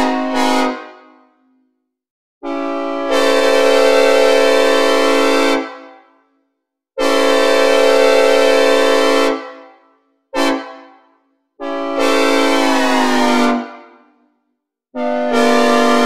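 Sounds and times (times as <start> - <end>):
locomotive air horn blasts: 0.0 - 1.4, 2.4 - 6.0, 7.0 - 9.8, 10.4 - 11.0, 11.6 - 13.9, 15.0 - 16.0.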